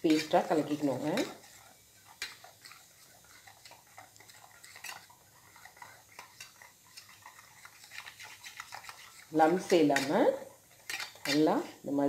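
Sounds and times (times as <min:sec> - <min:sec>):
utensil stirring batter in metal bowl: 0:00.0 - 0:12.0.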